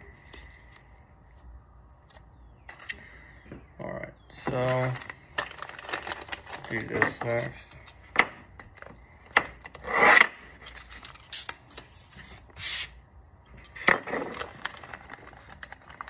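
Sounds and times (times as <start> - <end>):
plastic bags rustling: 4.5 - 7.7, 14.2 - 16.0.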